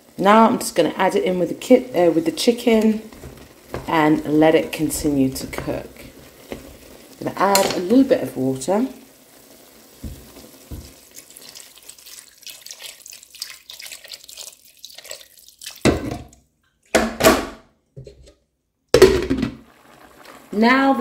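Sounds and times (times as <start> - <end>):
water running into a pot: 0.0 - 16.4, 19.0 - 21.0
water splashing: 9.8 - 17.0.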